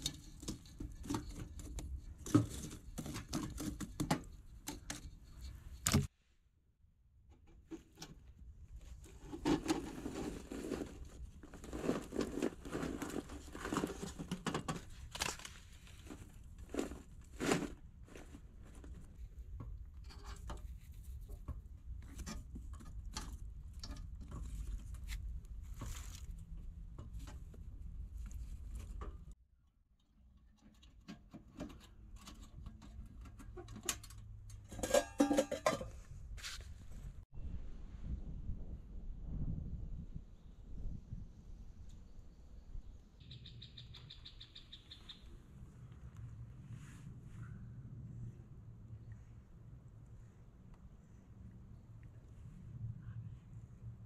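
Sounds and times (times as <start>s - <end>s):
mud crust grating against metal: 0.0s - 6.0s, 9.0s - 27.6s
metal kettle clinking: 34.7s - 36.0s.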